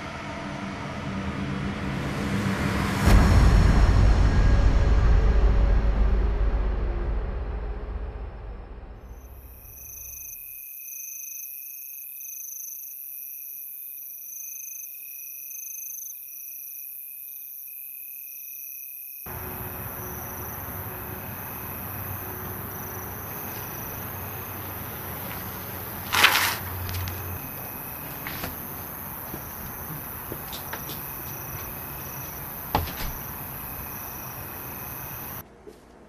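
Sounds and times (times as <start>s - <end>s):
sudden loud hit: 0.0s - 9.5s
crickets chirping: 9.0s - 35.4s
outdoor hiss: 19.3s - 35.4s.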